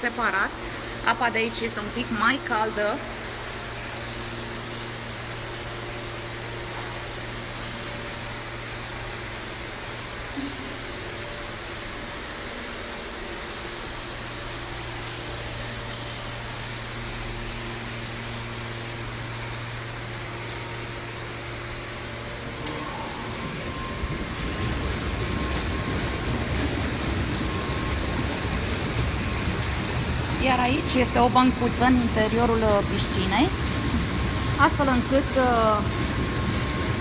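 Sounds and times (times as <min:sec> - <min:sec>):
churning water from jets: 0:00.0 - 0:37.0
low mechanical hum: 0:00.0 - 0:37.0.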